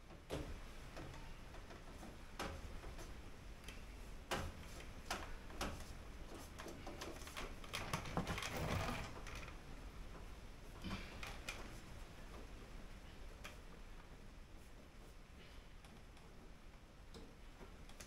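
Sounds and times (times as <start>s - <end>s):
light clicks and taps: 15.8s - 18.0s.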